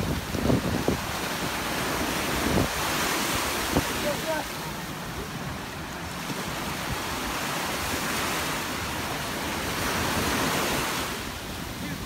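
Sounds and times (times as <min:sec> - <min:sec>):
wind on microphone: 0:00.0 - 0:04.4
surf washing in shallows: 0:00.0 - 0:12.0.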